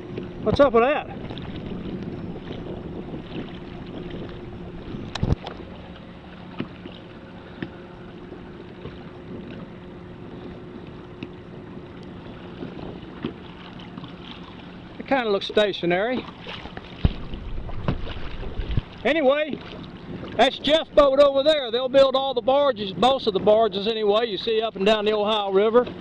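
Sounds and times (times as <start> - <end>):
water lapping around a kayak: 0.0 - 26.0
wind buffeting microphone: 0.0 - 26.0.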